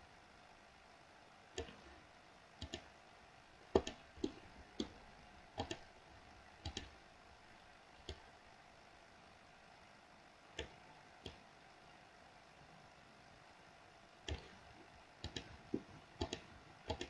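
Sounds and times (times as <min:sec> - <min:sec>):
computer mouse clicking: 0:01.5 - 0:01.9, 0:02.6 - 0:02.9, 0:03.7 - 0:05.0, 0:05.6 - 0:05.9, 0:06.6 - 0:07.0, 0:08.0 - 0:08.3, 0:10.5 - 0:11.4, 0:14.2 - 0:14.6, 0:15.2 - 0:17.0.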